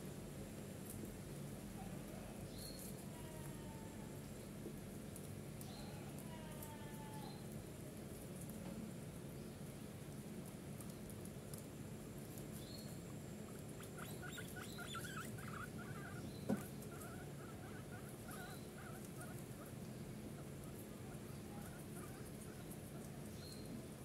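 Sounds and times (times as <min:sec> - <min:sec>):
short chirping animal calls: 0:13.8 - 0:16.4, 0:17.0 - 0:19.3.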